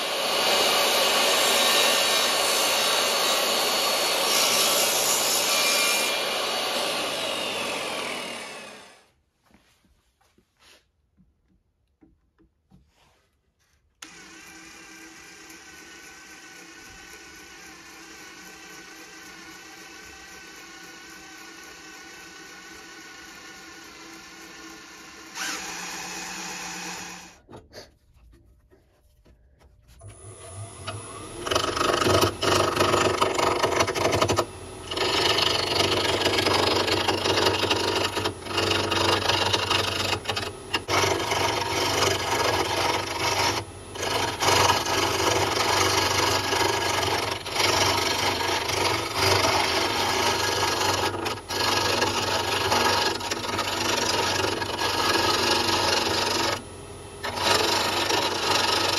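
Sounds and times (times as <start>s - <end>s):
gouge scraping spinning wood: 0.0s - 9.0s, 14.0s - 27.4s, 28.2s - 56.6s, 57.2s - 58.9s
drill press motor: 0.0s - 9.1s, 14.0s - 27.4s, 30.0s - 58.9s
wood lathe spinning: 0.0s - 9.2s, 13.8s - 27.6s, 28.6s - 58.9s.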